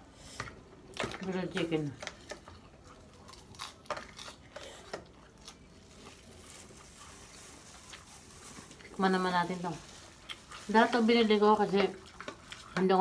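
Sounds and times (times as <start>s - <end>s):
crisp chewing crackles: 1.0s - 13.0s
lettuce leaf tearing: 3.2s - 9.6s.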